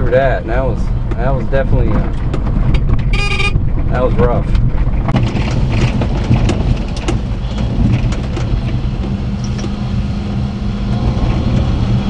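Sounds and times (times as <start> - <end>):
truck engine running: 0.0 - 12.0
tyres rumbling on gravel: 0.0 - 12.0
clicks and rattles: 1.1 - 9.8.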